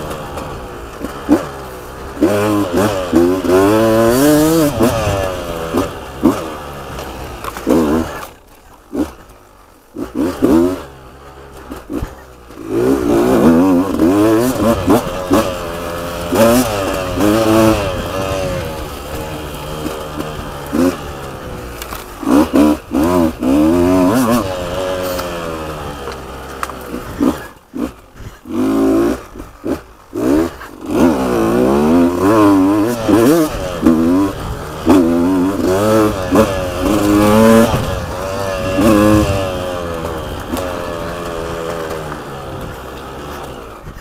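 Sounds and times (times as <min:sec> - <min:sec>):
two-stroke dirt bike engine revving: 0:00.0 - 0:44.0.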